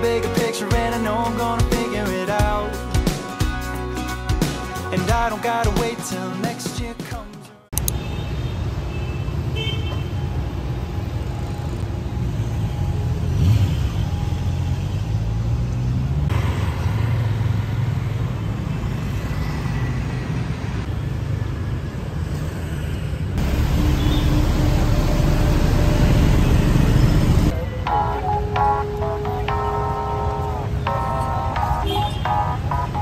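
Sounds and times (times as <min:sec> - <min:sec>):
street traffic rumble: 0:07.8 - 0:33.0.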